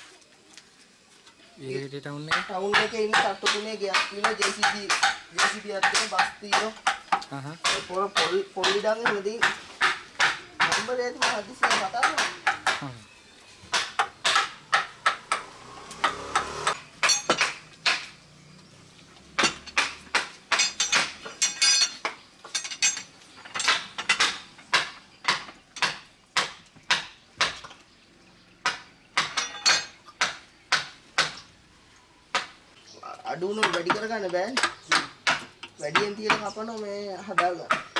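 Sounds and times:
hammer striking chisel: 0:02.3 - 0:12.8, 0:13.7 - 0:18.1, 0:33.6 - 0:36.6.

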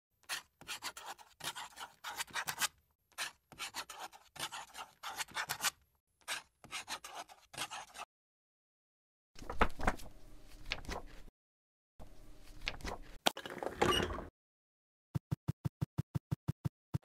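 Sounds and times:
pencil scratching on paper: 0:00.2 - 0:08.1.

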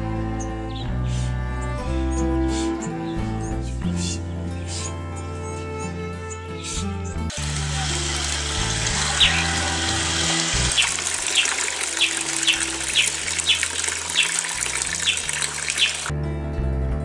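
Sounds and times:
soft background music: 0:00.0 - 0:17.0
water pouring into plastic bucket: 0:07.3 - 0:16.1.

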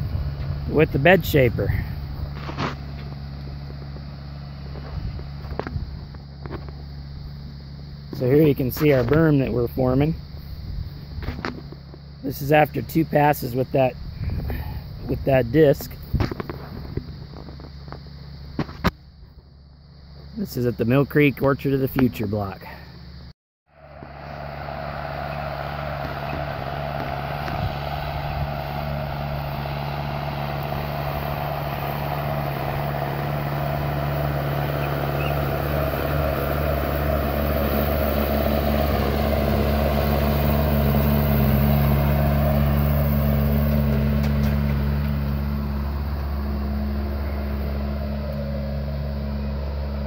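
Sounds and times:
tractor diesel engine under load: 0:00.0 - 0:10.4, 0:23.7 - 0:50.0.

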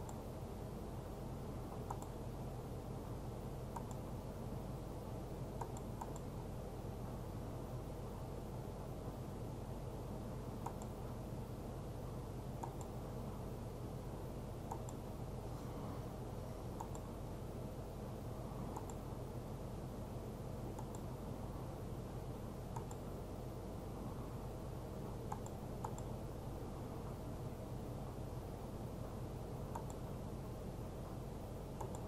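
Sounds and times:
computer mouse clicking: 0:00.0 - 0:00.2, 0:01.7 - 0:02.2, 0:03.7 - 0:04.0, 0:05.6 - 0:06.3, 0:10.6 - 0:11.0, 0:12.6 - 0:13.0, 0:14.7 - 0:15.0, 0:16.8 - 0:17.1, 0:18.7 - 0:19.0, 0:20.7 - 0:21.1, 0:22.7 - 0:23.1, 0:25.2 - 0:26.1, 0:29.7 - 0:30.1, 0:31.8 - 0:32.0
low hum and hiss: 0:00.0 - 0:32.0.

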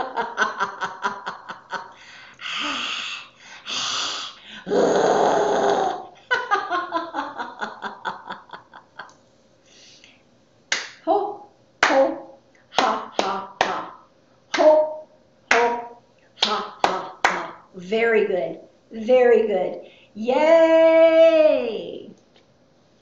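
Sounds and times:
woman laughing loudly: 0:00.0 - 0:02.0, 0:06.2 - 0:09.1
hands clapping: 0:10.7 - 0:11.0, 0:12.8 - 0:13.8, 0:15.5 - 0:15.8, 0:16.4 - 0:17.5.

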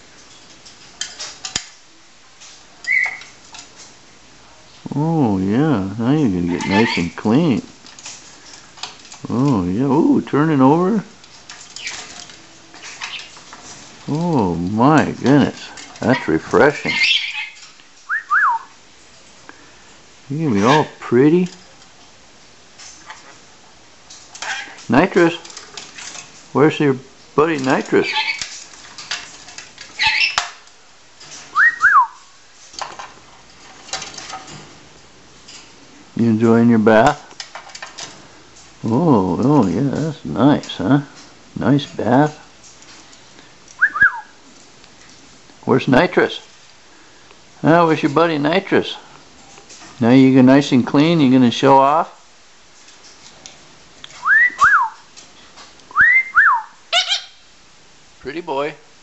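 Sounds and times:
whistled bird notes: 0:16.9 - 0:18.7, 0:31.6 - 0:32.2, 0:43.8 - 0:44.4, 0:54.2 - 0:55.0, 0:55.9 - 0:57.3.

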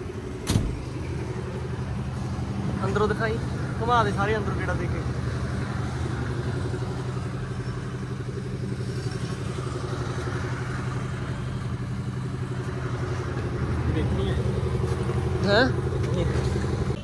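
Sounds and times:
car engine idling: 0:00.0 - 0:17.0.

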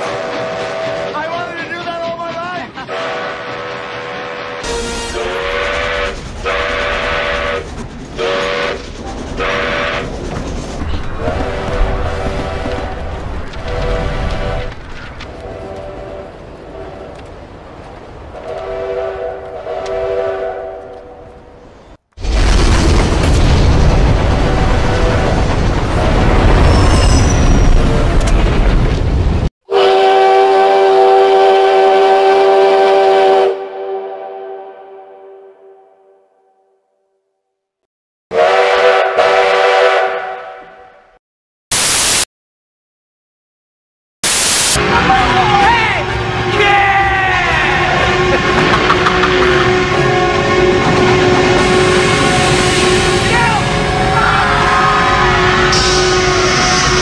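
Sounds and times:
low rumble of running train: 0:00.0 - 0:22.0, 0:23.5 - 0:34.8, 0:44.8 - 0:57.0
steam locomotive chime whistle: 0:47.7 - 0:57.0.

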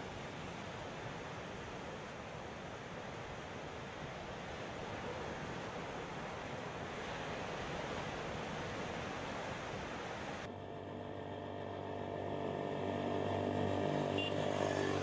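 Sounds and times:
wind and surf rushing: 0:00.0 - 0:10.9
vehicle engine humming: 0:10.5 - 0:15.0.

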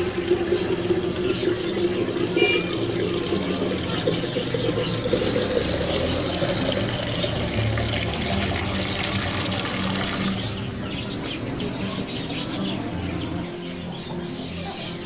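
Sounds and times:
tap water filling a jug: 0:00.0 - 0:10.5.

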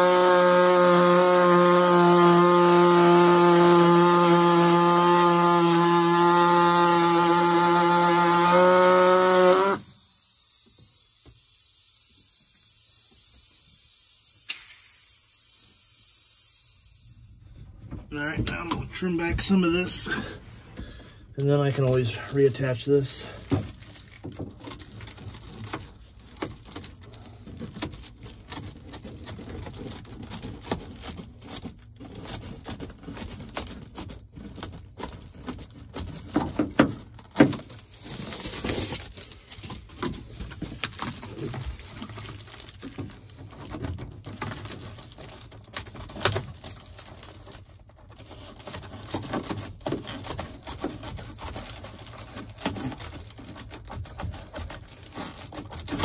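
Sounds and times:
brief hiss: 0:09.8 - 0:17.4
rustling: 0:20.4 - 0:56.0.

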